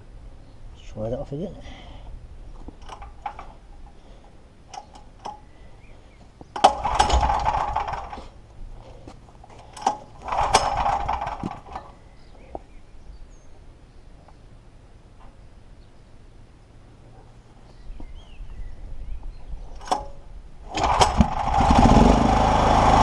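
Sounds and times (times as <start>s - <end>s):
generator engine cranking: 2.8s - 3.6s, 6.5s - 8.4s, 9.6s - 12.0s, 19.8s - 23.0s.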